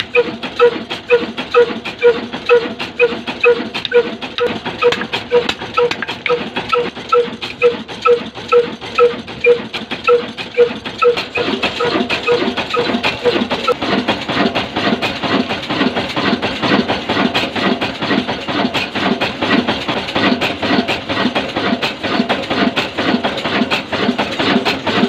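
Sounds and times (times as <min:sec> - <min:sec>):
diesel engine metallic beat: 0:00.0 - 0:25.0
sharp irregular clicks: 0:03.4 - 0:07.7.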